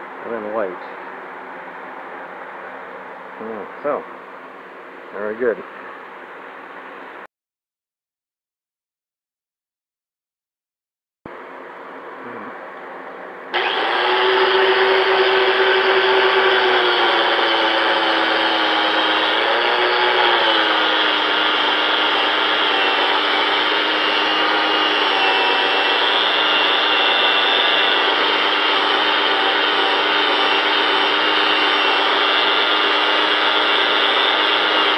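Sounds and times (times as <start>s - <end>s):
angle grinder buffing metal: 13.6s - 34.9s.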